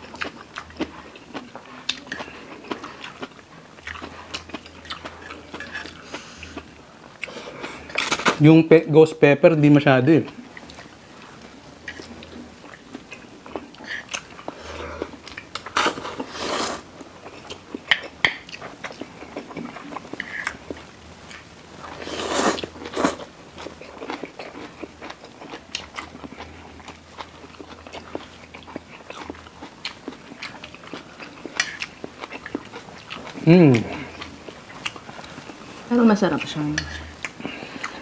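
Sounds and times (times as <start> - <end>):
wet chewing with mouth clicks: 0.0 - 8.2, 10.2 - 38.0
noodle slurping: 15.8 - 16.9, 22.0 - 23.2.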